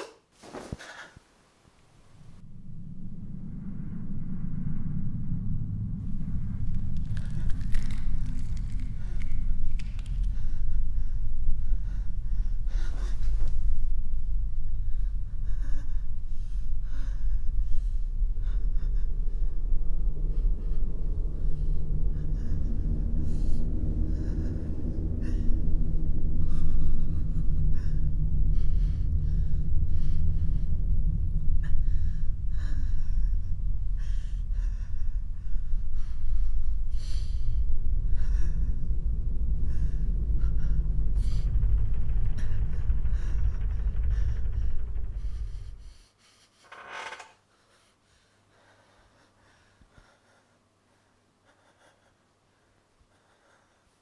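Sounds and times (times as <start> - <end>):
higher hum: 1.8 - 46.0
low steady drone: 1.8 - 47.2
person breathing heavily and gasping: 14.8 - 46.7.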